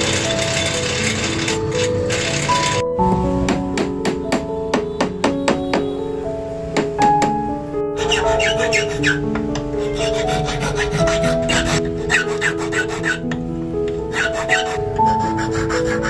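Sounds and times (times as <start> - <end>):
background music: 0.0 - 16.0
file rasping on steel: 8.0 - 9.2, 9.8 - 13.3, 14.1 - 16.0.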